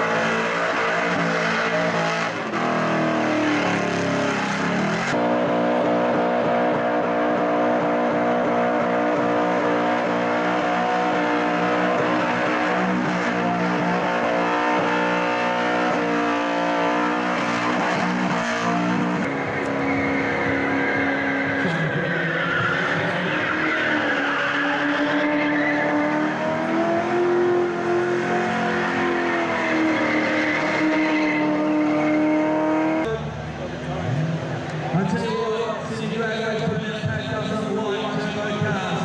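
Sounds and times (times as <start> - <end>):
car engine revving high: 0.0 - 34.8
tyres squealing on pavement: 17.4 - 26.2.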